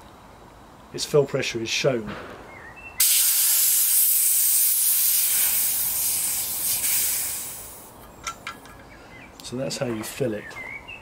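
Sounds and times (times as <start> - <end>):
high-pressure air hissing through hose: 3.0 - 7.9.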